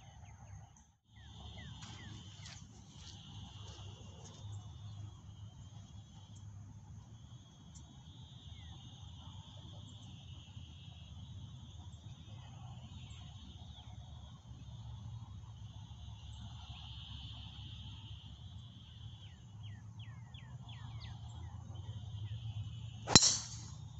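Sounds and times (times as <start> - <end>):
insects chirring: 1.1 - 23.9
faint bird chirps: 7.8 - 14.0.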